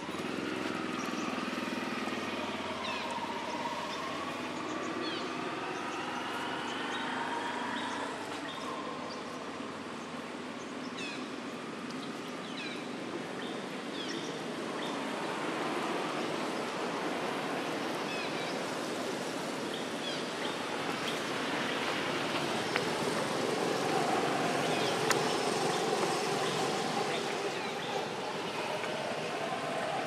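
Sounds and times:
rushing outdoor background noise: 0.0 - 30.0
small birds chirping: 17.8 - 30.0.

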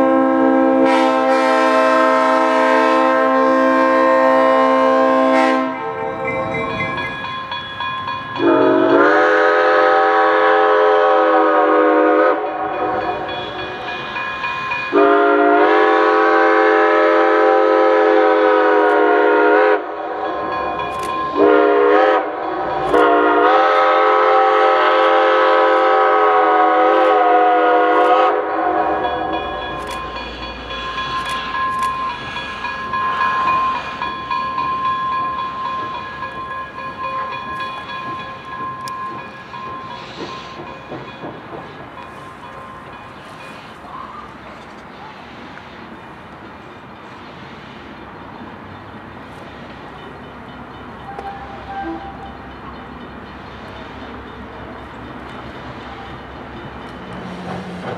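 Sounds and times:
steam locomotive whistle blasts: 0.0 - 7.3, 8.4 - 14.0, 14.7 - 20.2, 21.0 - 32.3, 51.1 - 52.3
train rumbling: 0.0 - 57.9
crossing bell ringing: 0.8 - 10.5, 11.1 - 16.2, 19.8 - 44.6, 48.0 - 57.9.

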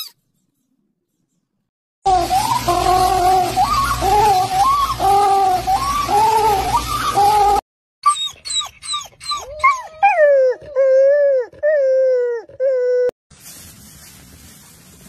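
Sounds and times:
dog howling: 2.1 - 13.1
dog yipping: 5.7 - 13.1.

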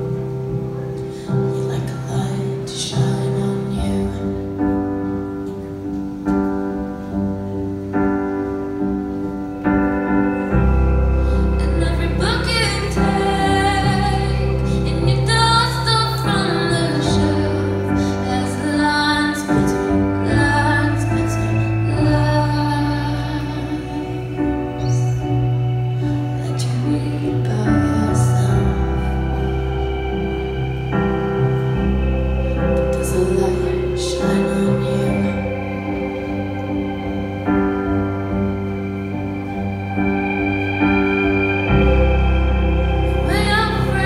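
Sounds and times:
woman singing: 1.3 - 5.2, 11.4 - 29.8, 32.7 - 37.2, 43.0 - 44.0
rock band playing live: 16.6 - 44.0
heavy bass: 19.5 - 44.0.

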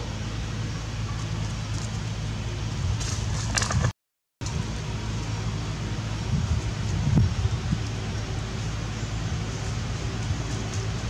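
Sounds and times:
low even hum: 0.0 - 11.0
crackling rustle: 1.0 - 4.6, 6.4 - 11.0.

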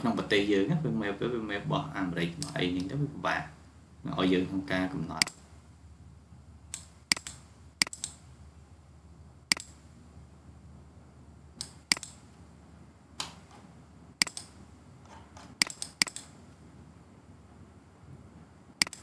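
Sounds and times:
computer mouse clicking: 6.7 - 8.2, 9.5 - 9.8, 11.6 - 12.2, 14.2 - 14.6, 15.4 - 16.4, 18.8 - 19.0.

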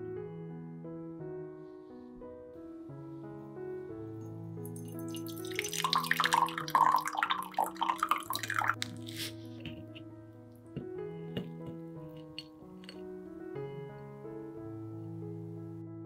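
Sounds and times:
soft piano music: 0.0 - 16.0
coffee poured into a ceramic cup: 4.6 - 9.3.

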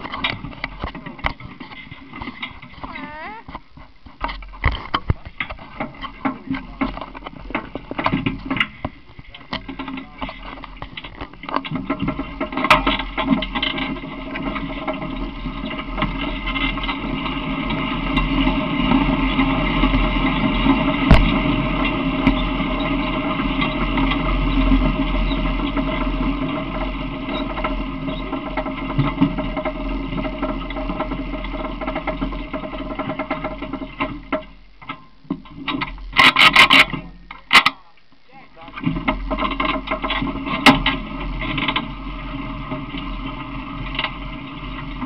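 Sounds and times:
cart rumbling and rattling: 0.0 - 37.8, 38.5 - 45.0
sharp knocks: 21.1 - 21.4.

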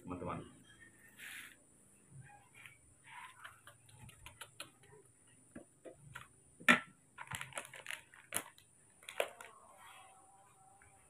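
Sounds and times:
plastic sachet crinkling: 7.2 - 9.6.

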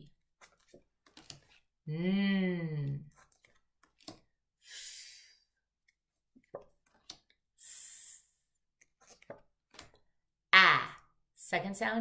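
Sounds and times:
woman making hissing letter sounds: 7.6 - 8.4.

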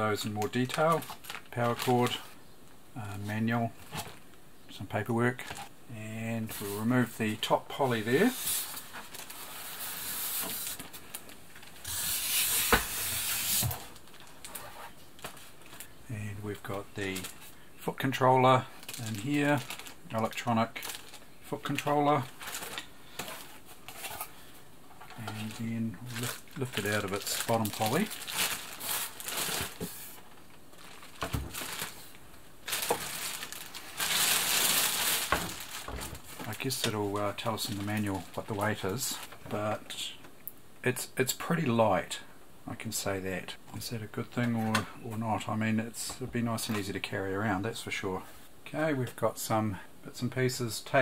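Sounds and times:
plastic bag crinkling: 0.2 - 2.4, 7.9 - 12.3, 12.9 - 39.6
packaging rustling and scraping: 0.4 - 2.4, 7.8 - 16.0, 16.6 - 17.6, 18.8 - 39.5.

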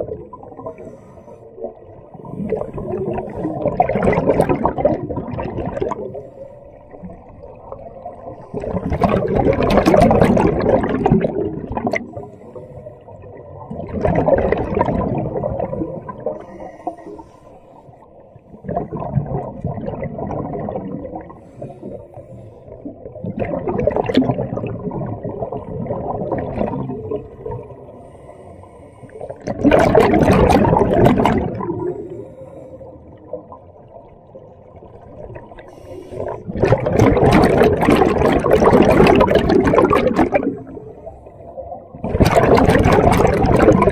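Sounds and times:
diver breathing through regulator: 0.6 - 1.6, 12.0 - 13.2, 16.2 - 18.8, 21.3 - 23.0, 27.1 - 29.5, 31.6 - 33.2, 35.6 - 36.6
gush of bubbles: 1.6 - 7.4, 8.3 - 12.3, 13.6 - 16.5, 18.5 - 21.4, 22.8 - 27.7, 29.3 - 32.1, 34.8 - 40.8, 42.0 - 43.9.

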